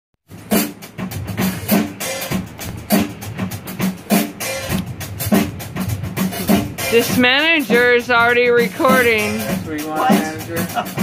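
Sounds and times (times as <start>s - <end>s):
rock drum beat: 0.2s - 11.0s.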